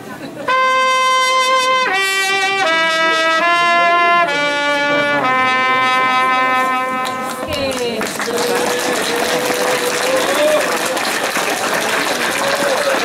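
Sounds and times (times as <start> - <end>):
solo trumpet slow melody: 0.5 - 7.5.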